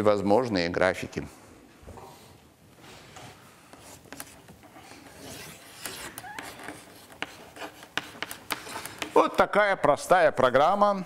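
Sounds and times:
chalk scratching on a blackboard: 3.7s - 9.4s
chalk tapping: 3.7s - 9.5s.

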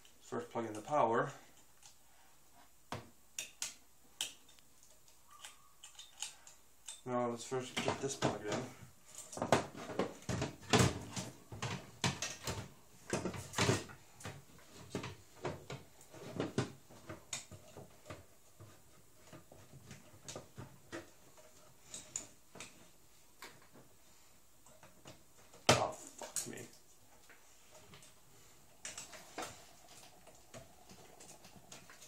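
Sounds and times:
clicks and knocks of cables fitted: 2.9s - 7.0s, 7.7s - 23.9s.

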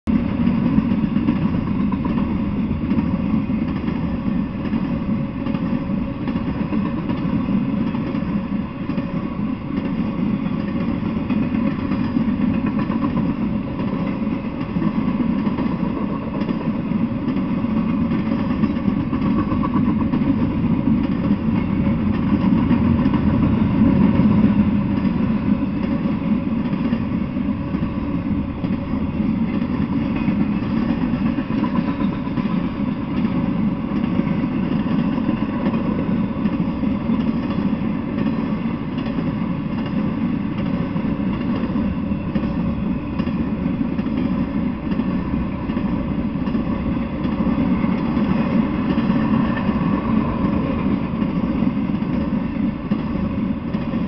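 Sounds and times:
freight train wheels rumbling on rails: 0.0s - 54.0s.

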